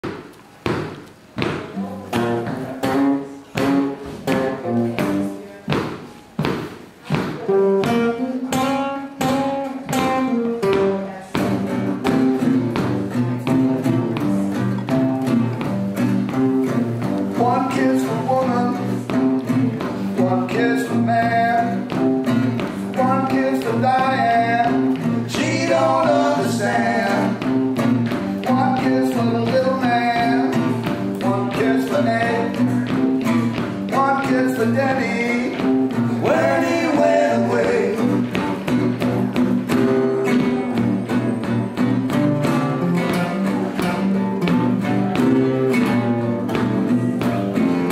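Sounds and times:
acoustic guitars strumming: 0:00.0 - 0:47.9
man singing: 0:17.3 - 0:27.6, 0:28.4 - 0:38.4.

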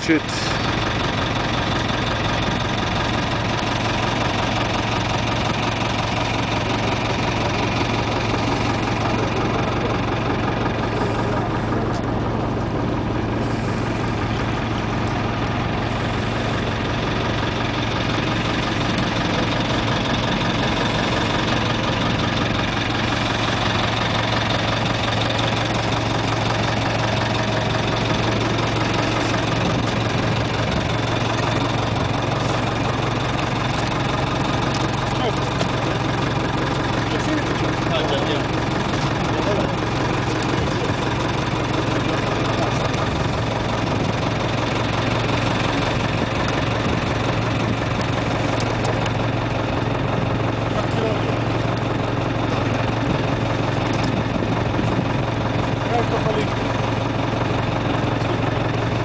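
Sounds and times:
boat engine idling: 0:00.0 - 0:59.0.

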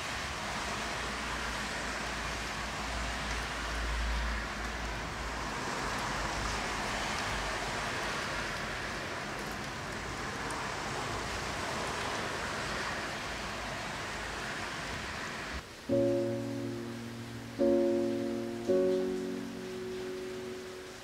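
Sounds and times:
car tyres hissing on wet road: 0:00.0 - 0:15.6
rain falling: 0:00.1 - 0:21.0.

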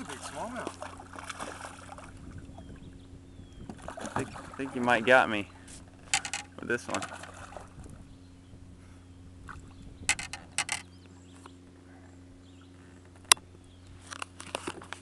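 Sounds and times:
water splash: 0:00.0 - 0:02.2, 0:03.8 - 0:04.9
steady low hum: 0:00.0 - 0:15.0
knocks and rattles: 0:06.1 - 0:07.1, 0:10.1 - 0:10.8.

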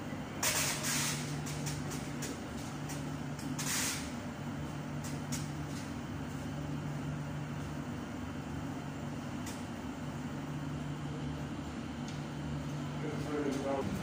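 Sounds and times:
train low electrical hum: 0:00.0 - 0:14.0
air hiss: 0:03.6 - 0:04.2.

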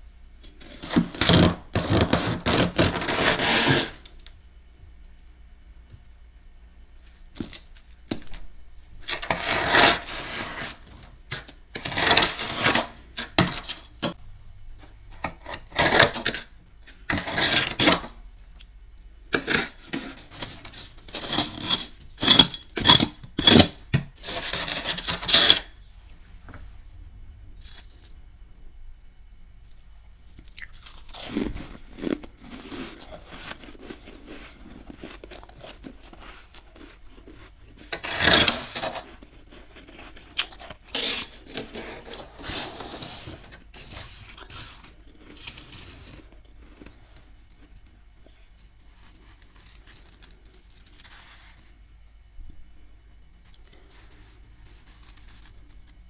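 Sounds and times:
spoon scraping frost: 0:00.4 - 0:04.2, 0:09.0 - 0:14.2, 0:15.2 - 0:18.2, 0:19.3 - 0:25.8, 0:30.6 - 0:47.2, 0:53.7 - 0:56.0.

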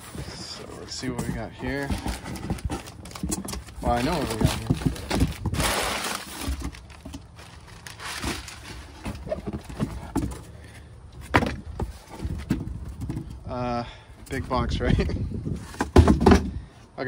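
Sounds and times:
packing paper rustling: 0:00.0 - 0:10.4
box knocking: 0:15.8 - 0:16.5.

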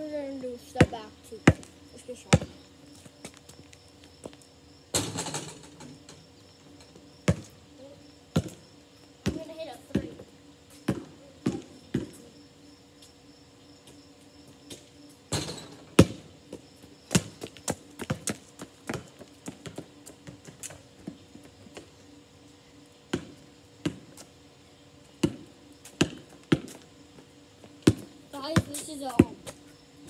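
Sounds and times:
faint steady hum: 0:00.0 - 0:30.0
basketball bouncing on pavement: 0:00.6 - 0:05.5, 0:06.9 - 0:07.6, 0:08.3 - 0:12.4, 0:14.7 - 0:21.9, 0:23.1 - 0:24.3, 0:25.1 - 0:29.6.

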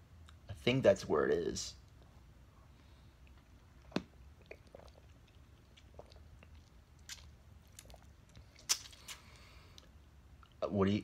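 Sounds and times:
biting and mouth sounds: 0:03.2 - 0:10.6.

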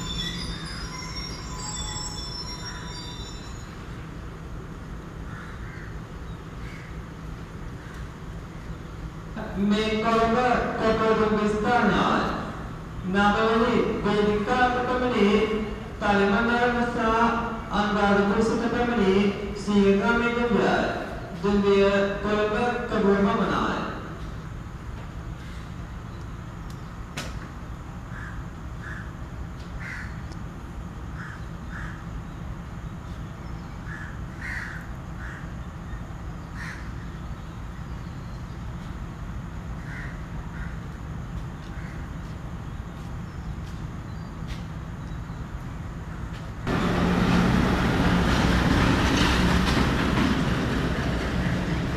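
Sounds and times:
diesel locomotive engine: 0:00.0 - 0:51.9
crows cawing: 0:05.2 - 0:07.1, 0:07.7 - 0:08.7, 0:28.1 - 0:29.2, 0:29.8 - 0:30.3, 0:31.2 - 0:32.0, 0:33.8 - 0:35.5, 0:36.6 - 0:37.0, 0:39.8 - 0:40.8, 0:41.7 - 0:42.1
train wheels on rails: 0:40.8 - 0:44.9, 0:46.2 - 0:51.9.

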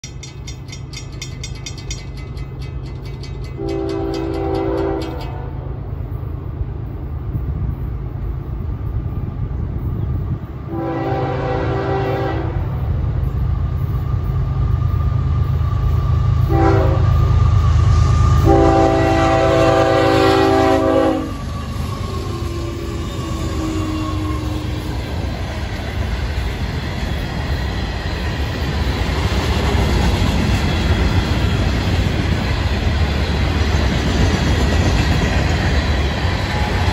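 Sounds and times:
crossing bell ringing: 0:00.0 - 0:06.3
locomotive rumble: 0:00.0 - 0:36.9
locomotive horn: 0:03.6 - 0:05.8, 0:10.7 - 0:12.8, 0:16.4 - 0:17.3, 0:18.1 - 0:21.5.

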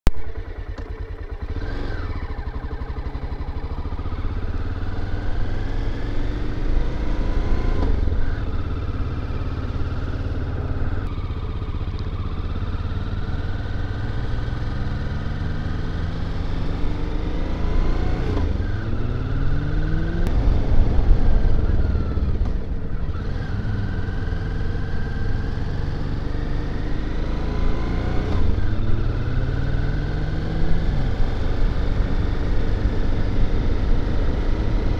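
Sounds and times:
motorcycle engine accelerating: 0:00.1 - 0:34.9.

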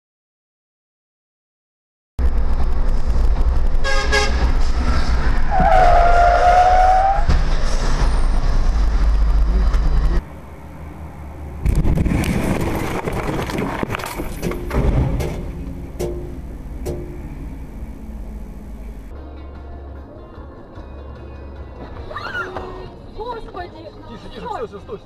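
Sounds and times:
road noise: 0:02.2 - 0:25.0
vehicle engine rumble: 0:02.2 - 0:25.0
car horn honking: 0:03.8 - 0:04.5, 0:05.5 - 0:07.3.

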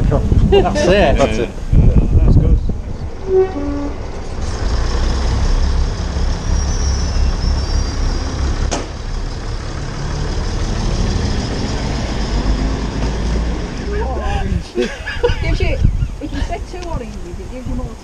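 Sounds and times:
railcar engine idling: 0:02.9 - 0:14.3.

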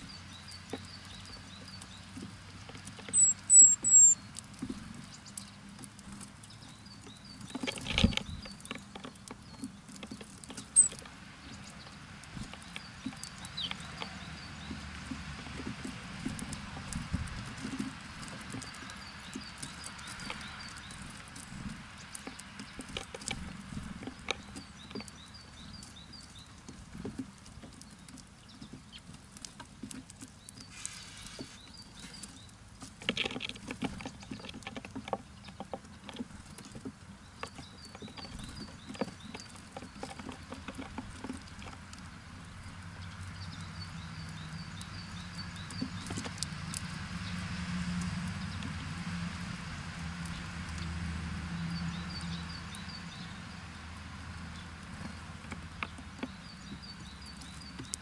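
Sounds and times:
birds pecking at seed: 0:00.0 - 0:58.0
quick high bird chirps: 0:03.2 - 0:04.2.

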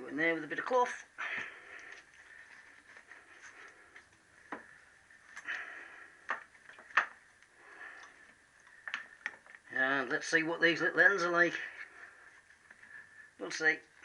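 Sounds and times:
cloth rag rustling: 0:01.2 - 0:06.7.

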